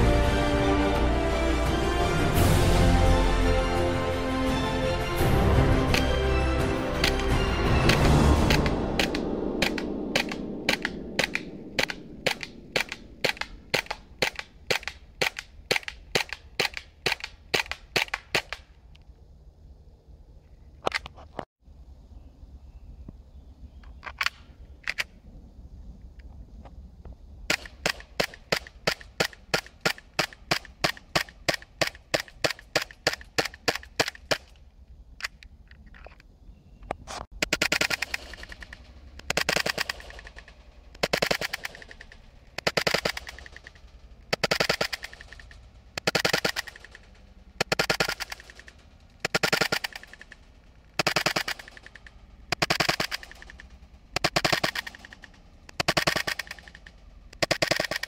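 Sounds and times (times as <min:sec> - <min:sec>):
rattling airsoft bursts: 0:05.8 - 0:18.8, 0:27.5 - 0:36.1, 0:37.3 - 0:58.0
airsoft pistol shots: 0:07.8 - 0:18.7, 0:37.3 - 0:58.0.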